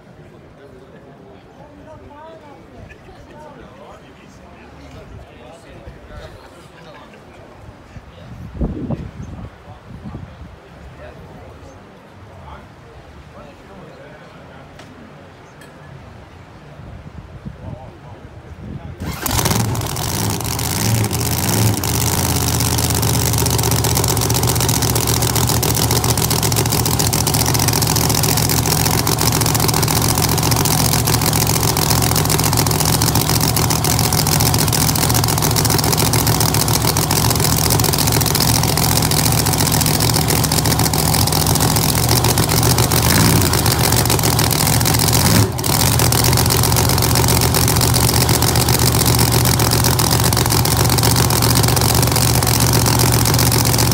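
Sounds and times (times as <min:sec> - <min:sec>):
race car engine idling: 0:19.0 - 0:53.9.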